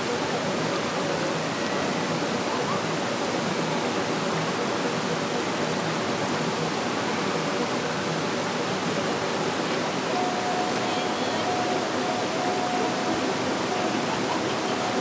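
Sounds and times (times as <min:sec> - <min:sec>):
stream babbling over rocks: 0:00.1 - 0:15.0
faint high tone: 0:10.1 - 0:15.0.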